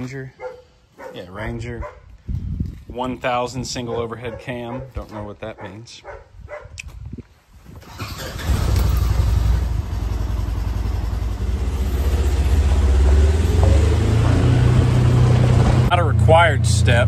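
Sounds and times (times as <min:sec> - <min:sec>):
vehicle engine starting and running: 0:07.8 - 0:17.0.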